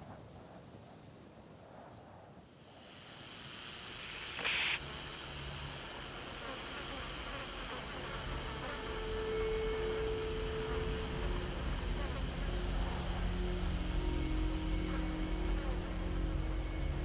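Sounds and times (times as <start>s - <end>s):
insects buzzing: 2.6s - 17.0s
steady hum: 2.7s - 17.0s
low rumble: 4.8s - 17.0s.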